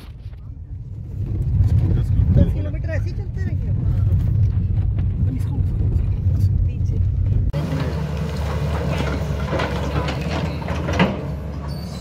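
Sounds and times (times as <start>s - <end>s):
excavator diesel engine running: 4.3s - 12.0s.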